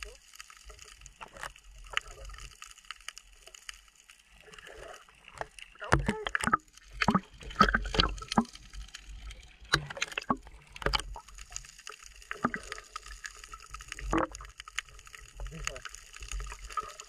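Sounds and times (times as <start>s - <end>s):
water splashing and sloshing: 0.0s - 17.0s.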